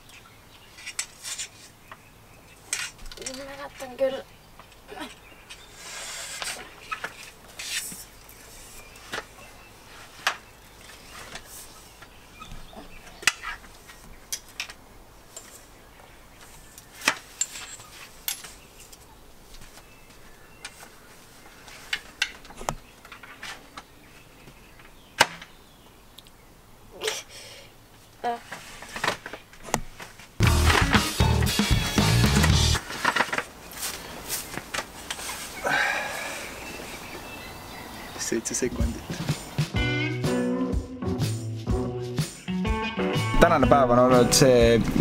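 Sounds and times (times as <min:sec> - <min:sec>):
folding chairs clicking and clacking: 0:28.5 - 0:35.4.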